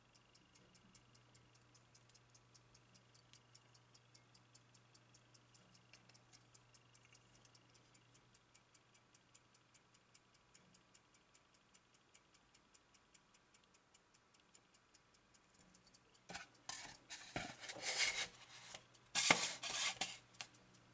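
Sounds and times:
clock ticking fast: 0.0s - 20.9s
rubbing and knocking handling noise: 16.3s - 20.2s.

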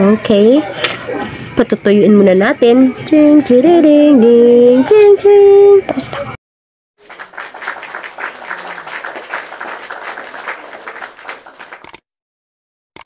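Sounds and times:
crowd clapping: 7.0s - 12.0s.

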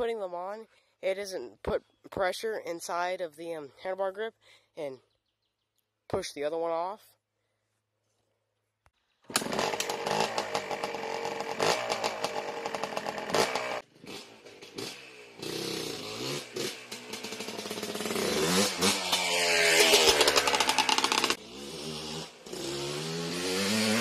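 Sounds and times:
two-stroke quad engine revving: 9.3s - 24.0s.

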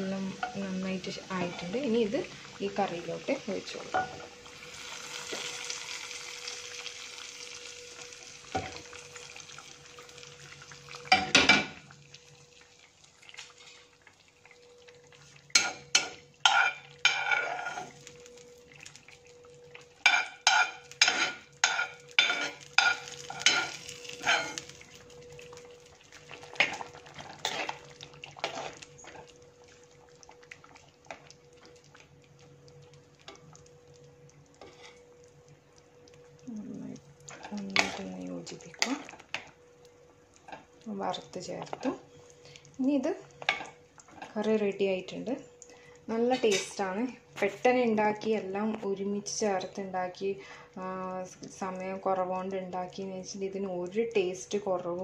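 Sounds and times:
faint steady hum: 0.0s - 55.0s
tempering sizzling in hot oil: 0.0s - 55.0s
metal spoon scraping frying pan: 15.5s - 18.0s, 20.1s - 24.7s.

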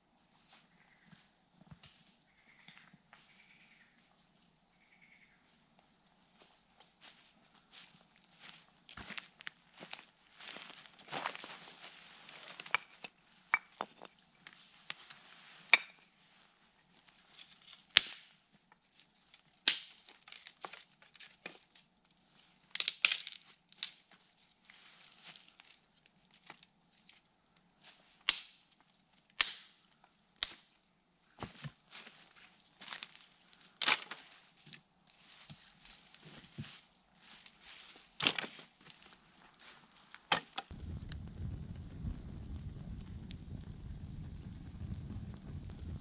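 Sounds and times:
footsteps in dry leaves: 6.4s - 12.6s, 24.6s - 25.9s, 31.9s - 38.8s
rustling in dry leaves: 7.0s - 12.7s, 24.3s - 26.4s, 31.9s - 38.8s
dry sticks snapping: 19.6s - 20.5s, 22.7s - 24.0s, 28.2s - 29.8s, 30.4s - 30.7s.

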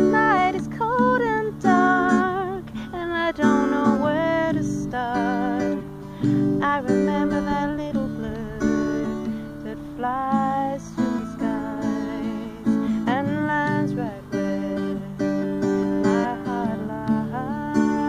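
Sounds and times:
acoustic guitar chords: 0.0s - 18.0s
woman singing: 0.0s - 18.0s.

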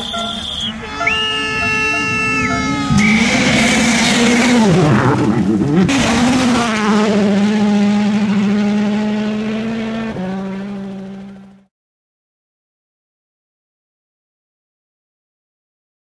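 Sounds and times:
car engine at high revs: 0.0s - 11.7s.

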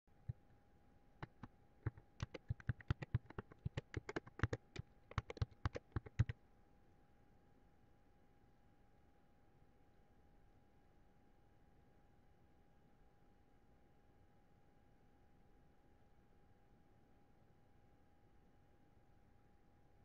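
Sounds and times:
faint steady hum: 0.1s - 20.0s
computer keyboard typing: 1.2s - 6.4s.

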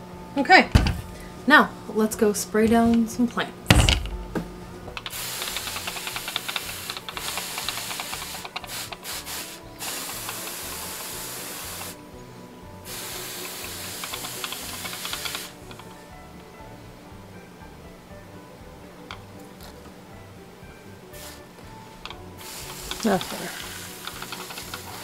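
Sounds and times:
sprayer hissing: 5.0s - 12.0s, 12.8s - 15.6s, 21.2s - 21.5s, 22.4s - 25.0s.

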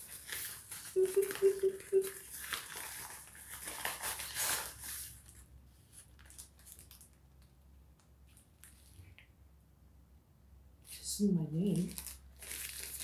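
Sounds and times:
paper envelope crinkling and tearing: 0.0s - 1.4s, 2.0s - 7.2s, 11.7s - 13.0s
faint plastic crackles: 0.0s - 9.3s, 10.8s - 13.0s.

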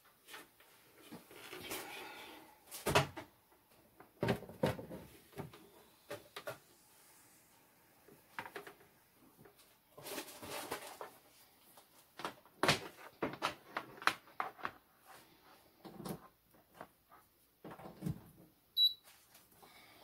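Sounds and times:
short high beep: 18.8s - 19.0s.

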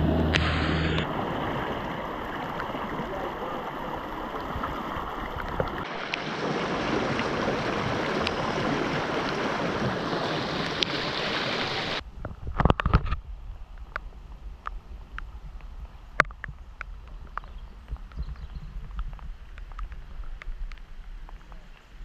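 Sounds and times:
floodwater rushing: 0.0s - 12.0s.

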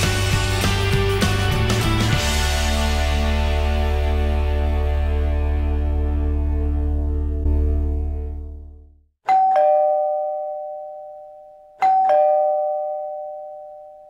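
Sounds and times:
background music: 0.0s - 8.9s
two-tone doorbell chime: 9.2s - 14.0s.

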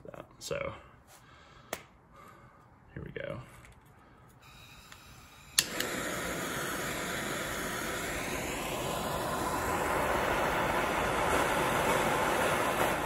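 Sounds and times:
blowtorch hissing flame: 4.4s - 13.0s.

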